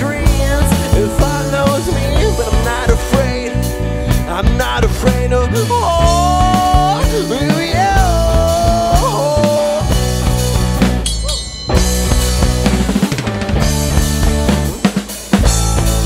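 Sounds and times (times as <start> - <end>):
man singing: 0.0 - 10.6
rock band playing: 0.0 - 16.0.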